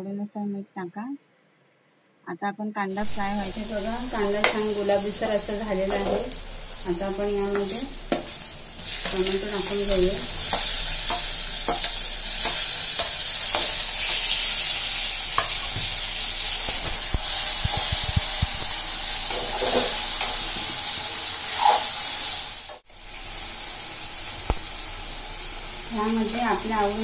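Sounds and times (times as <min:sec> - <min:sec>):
food sizzling in hot oil: 0:02.9 - 0:27.0
metal spoon scraping pan: 0:03.4 - 0:22.1.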